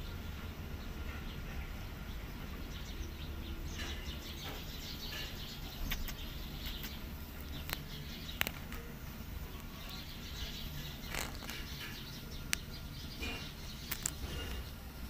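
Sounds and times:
steady low hum: 0:00.0 - 0:15.0
sharp clicks: 0:04.5 - 0:08.9, 0:11.0 - 0:14.6
kittens squeaking: 0:04.6 - 0:14.6.

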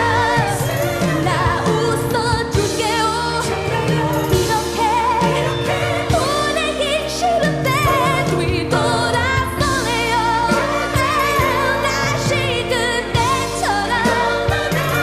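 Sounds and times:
instrumental accompaniment: 0:00.0 - 0:15.0
woman singing pop ballad: 0:00.0 - 0:15.0.

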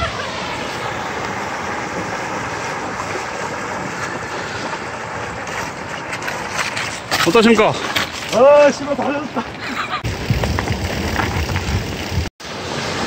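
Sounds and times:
stream flowing over rocks: 0:00.0 - 0:07.0.

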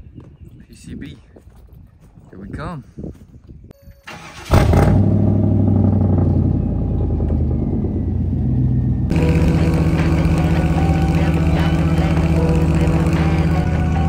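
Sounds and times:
vehicle road noise: 0:04.1 - 0:14.0
pickup truck engine running: 0:05.0 - 0:14.0.

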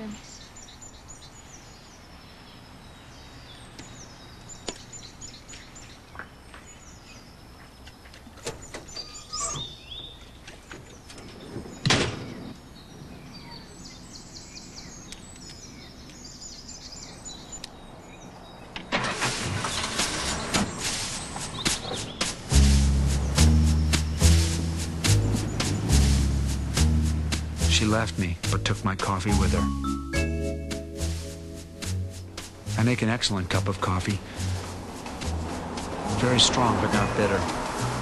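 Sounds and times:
birds chirping: 0:00.0 - 0:38.0.

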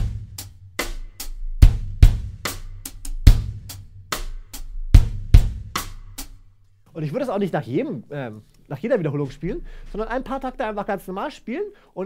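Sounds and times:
drum kit rock groove: 0:00.0 - 0:06.5.

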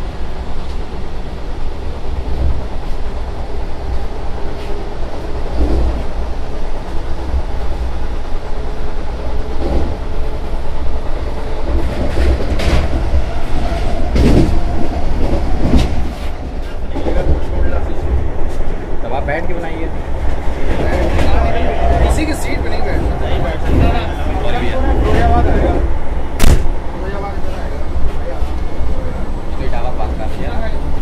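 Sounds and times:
train low rumble: 0:00.0 - 0:31.0
wheels clacking over rail joints: 0:11.7 - 0:17.8.

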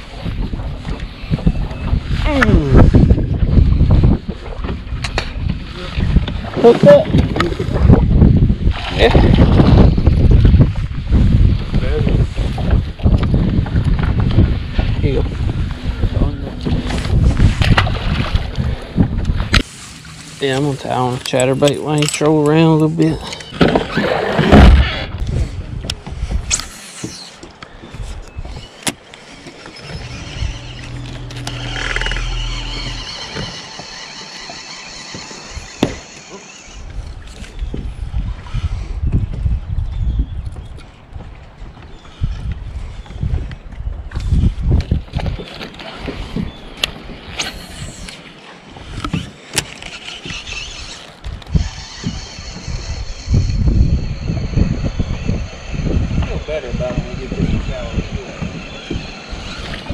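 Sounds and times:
wind rumble on microphone: 0:00.0 - 0:29.0, 0:29.7 - 0:59.9
electric motor humming: 0:29.5 - 0:36.9, 0:49.2 - 0:59.9
fishing reel being cranked: 0:29.5 - 0:37.4, 0:48.8 - 0:59.9
sharp reel clicks: 0:29.7 - 0:36.8, 0:49.0 - 0:53.6.

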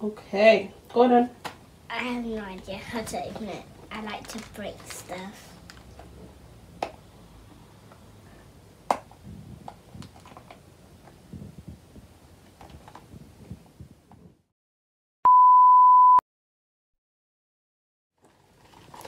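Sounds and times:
cardboard box and wrapper crinkling: 0:03.9 - 0:06.0, 0:18.2 - 0:19.0
loud steady test tone beep: 0:15.2 - 0:16.2.

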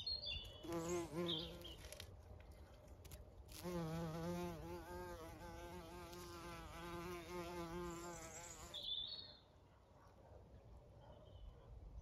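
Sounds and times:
bee buzzing in flight: 0:03.6 - 0:08.7.

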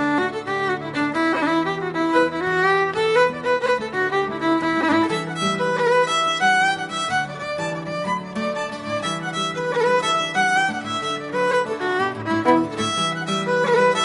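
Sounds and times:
fiddle playing folk tune: 0:00.0 - 0:14.0.

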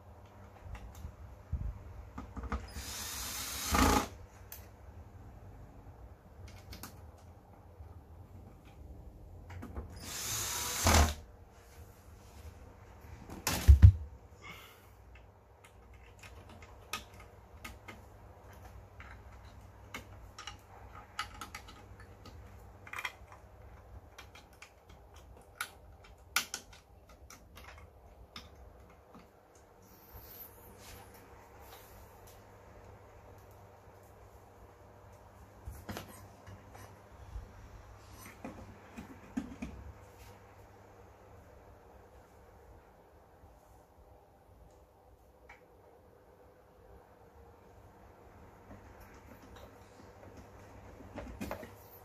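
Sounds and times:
cordless drill driving screw: 0:02.7 - 0:04.1, 0:10.0 - 0:11.2.

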